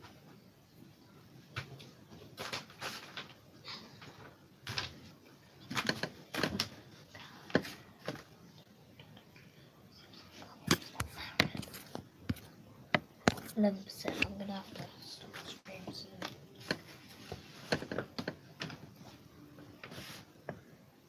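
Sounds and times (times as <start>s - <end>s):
clicks taps and knocks: 10.7s - 13.5s.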